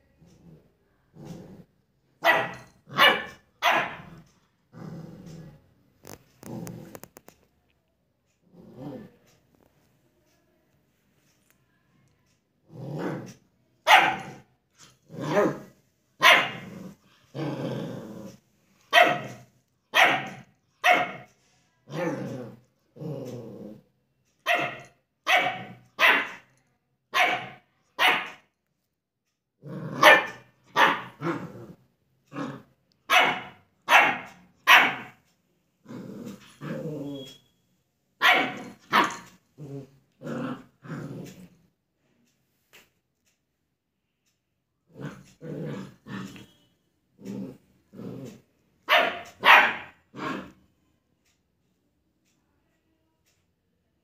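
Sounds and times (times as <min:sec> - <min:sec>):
puppy barking: 0:02.2 - 0:04.1, 0:13.8 - 0:14.4, 0:16.2 - 0:16.7, 0:18.9 - 0:21.3, 0:24.4 - 0:26.5, 0:27.1 - 0:28.4, 0:29.9 - 0:31.4, 0:33.1 - 0:35.2, 0:38.2 - 0:39.3, 0:48.9 - 0:50.3.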